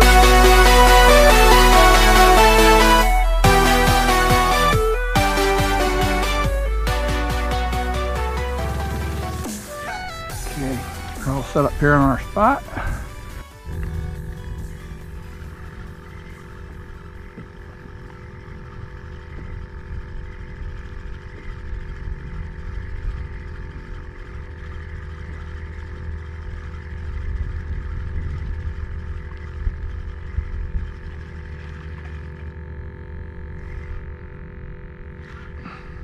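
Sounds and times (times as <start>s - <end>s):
faint steady hum: 10.7s - 36.0s
wind buffeting microphone: 11.7s - 31.7s.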